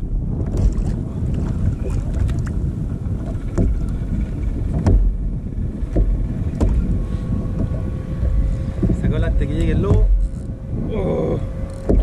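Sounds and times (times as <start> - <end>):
water lapping against kayak hull: 0.0 - 12.0
wind rumbling on microphone: 0.0 - 12.0.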